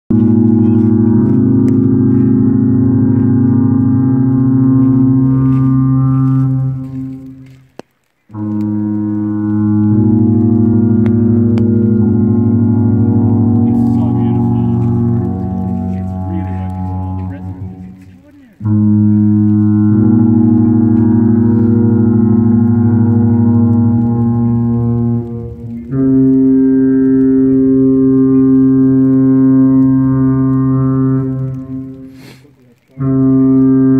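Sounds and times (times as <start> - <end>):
foghorn blast: 0.1 - 33.9.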